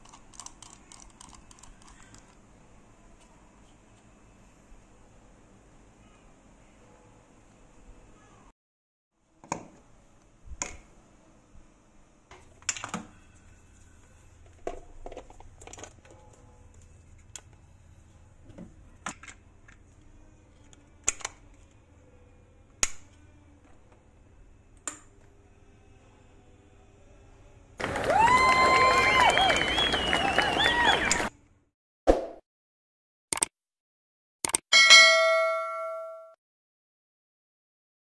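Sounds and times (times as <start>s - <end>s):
faint low hum: 0.0s - 8.5s, 9.3s - 28.8s.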